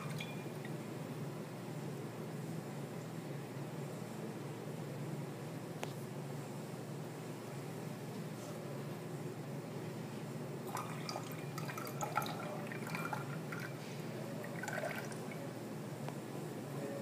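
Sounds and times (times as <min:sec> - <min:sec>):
liquid pouring into beaker: 0:10.6 - 0:13.8, 0:14.4 - 0:15.4.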